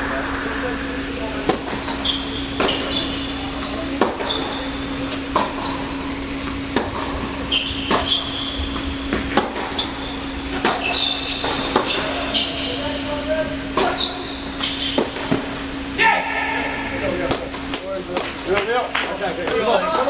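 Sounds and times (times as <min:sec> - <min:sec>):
low hum in hall: 0:00.0 - 0:20.0
sneakers squeaking on court: 0:01.6 - 0:12.8, 0:13.8 - 0:15.3
tennis ball hit by racket: 0:09.1 - 0:09.8.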